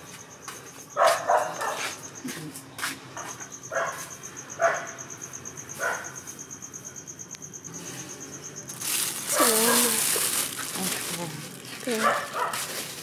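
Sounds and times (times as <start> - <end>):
crickets chirping: 0.0 - 13.0
dog barking: 1.0 - 1.9, 3.7 - 5.0, 5.8 - 6.2, 12.0 - 12.7.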